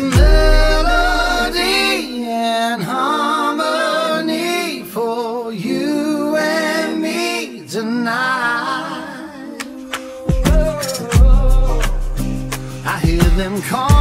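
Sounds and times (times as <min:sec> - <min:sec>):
person singing long wavering notes: 0:00.0 - 0:02.4.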